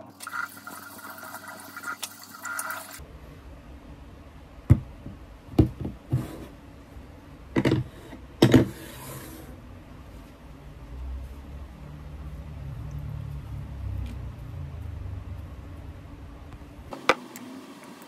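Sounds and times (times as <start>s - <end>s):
water running: 0.0s - 3.0s.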